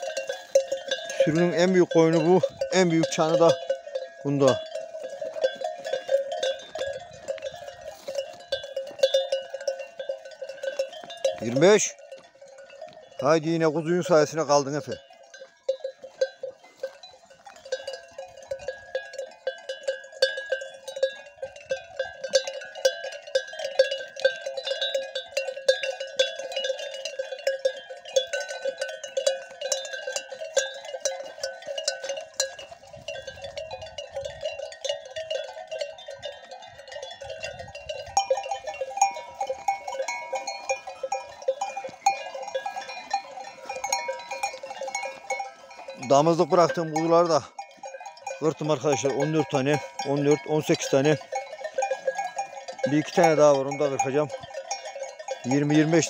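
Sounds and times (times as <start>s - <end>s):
sheep bells clanking: 0.0s - 56.0s.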